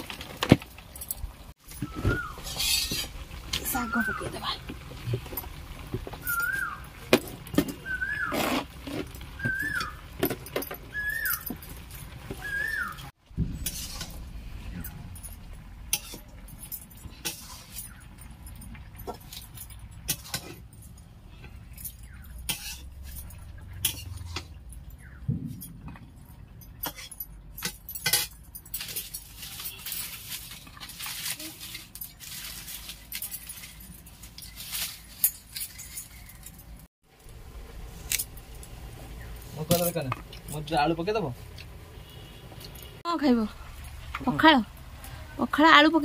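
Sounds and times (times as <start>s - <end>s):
metal utensils clinking on pot: 1.0s - 7.8s, 13.6s - 36.9s.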